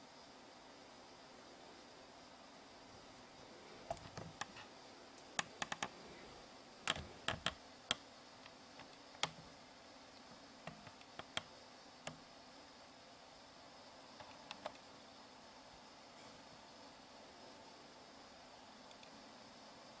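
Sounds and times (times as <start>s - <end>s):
faint steady hiss: 0.0s - 20.0s
sharp clicks and taps: 5.4s - 5.9s, 6.9s - 8.0s, 8.8s - 9.4s, 10.6s - 11.5s, 14.2s - 14.8s.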